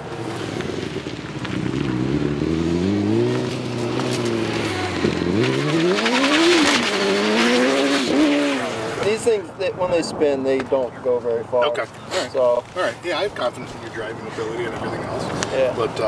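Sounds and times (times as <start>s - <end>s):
race car engine revving hard: 1.6s - 9.1s.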